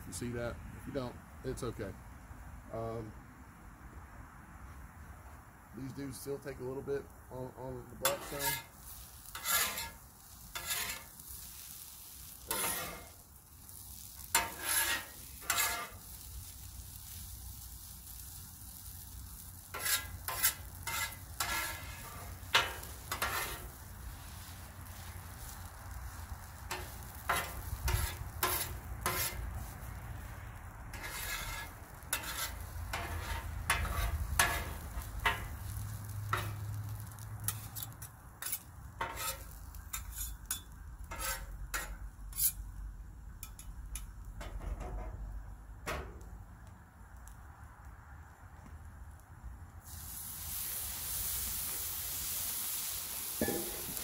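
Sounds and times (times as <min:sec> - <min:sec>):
hash browns sizzling: 0:04.6 - 0:54.0
metal spatulas scraping on griddle: 0:08.0 - 0:17.2, 0:18.8 - 0:25.6, 0:26.5 - 0:29.8, 0:30.9 - 0:42.8, 0:43.4 - 0:45.2, 0:53.2 - 0:54.0.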